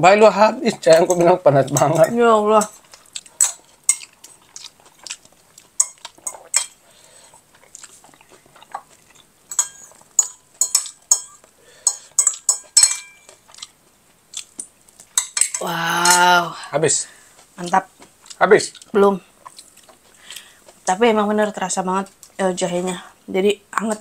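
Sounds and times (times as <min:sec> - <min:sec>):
cutlery clinking on dishes: 0:00.7 - 0:02.8, 0:03.4 - 0:04.2, 0:05.8 - 0:06.8, 0:09.5 - 0:13.7, 0:15.1 - 0:16.2.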